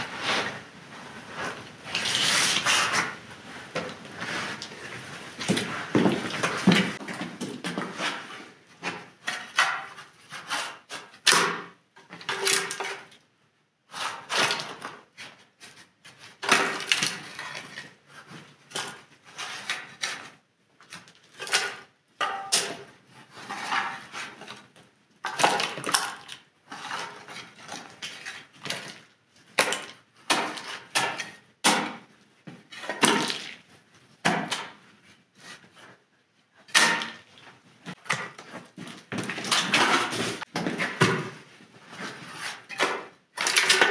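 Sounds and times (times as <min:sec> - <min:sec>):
metal trowels scraping mud: 0:01.4 - 0:03.2, 0:42.0 - 0:43.9.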